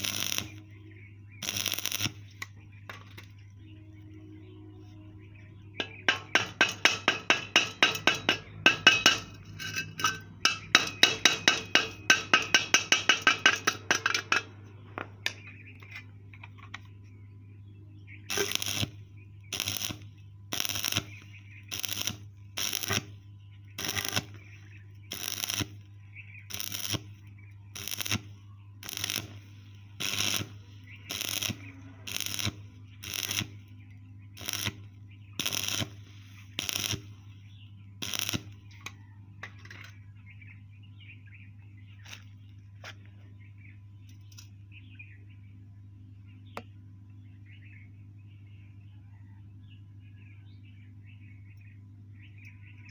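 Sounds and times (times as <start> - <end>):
welding arc crackling: 0.0 - 3.2, 5.9 - 14.5, 18.3 - 33.8, 34.4 - 37.3, 38.0 - 38.6
hammer striking metal: 5.8 - 14.6.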